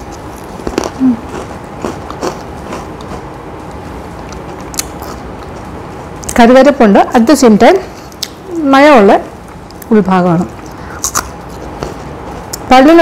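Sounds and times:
crunching bites of crackers: 0.0 - 3.3.

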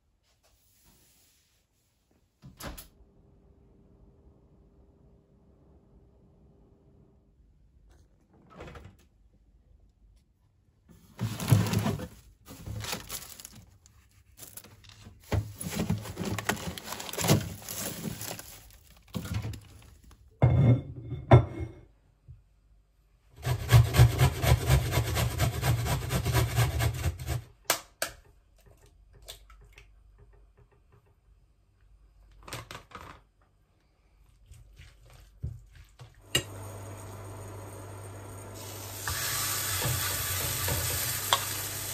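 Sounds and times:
scraping and rustling: 11.0 - 20.2
pan sizzling: 38.6 - 41.9.

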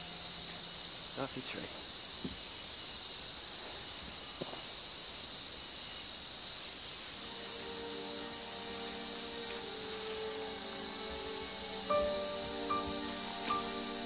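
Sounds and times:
insects droning: 0.0 - 14.0
background music: 7.2 - 14.0.

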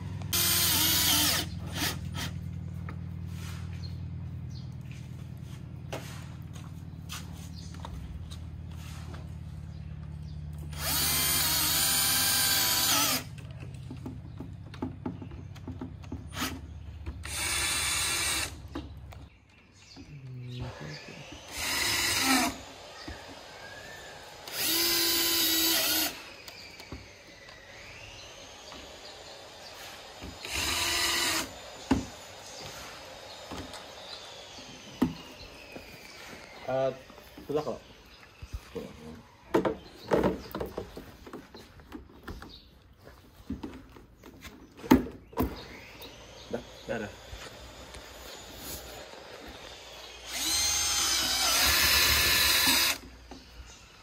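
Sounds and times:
cordless drill driving a screw: 0.3 - 2.4, 10.7 - 13.4, 17.2 - 18.8, 20.6 - 37.2, 45.5 - 53.3.

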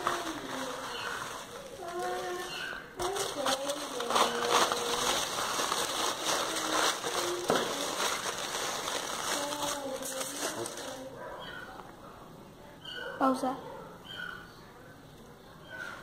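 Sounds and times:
aluminium foil crinkling: 0.0 - 11.2.

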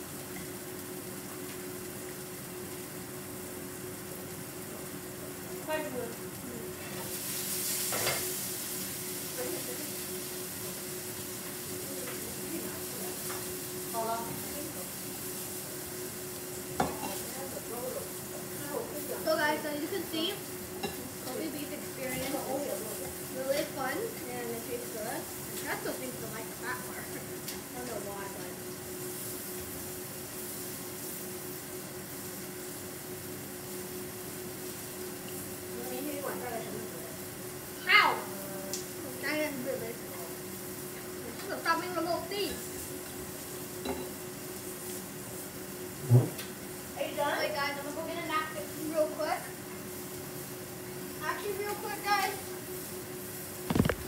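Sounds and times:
faint constant hum: 0.0 - 54.0
meat sizzling in a pan: 0.0 - 54.0.

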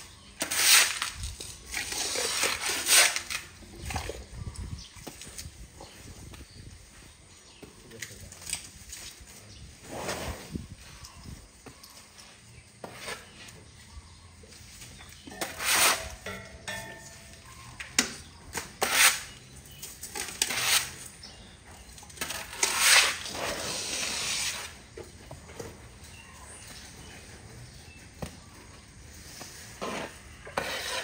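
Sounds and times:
broom sweeping wet concrete: 0.4 - 3.6, 9.2 - 10.8, 12.8 - 13.8, 14.6 - 16.3, 18.7 - 19.4, 20.2 - 21.3, 22.2 - 24.9, 29.1 - 31.0.

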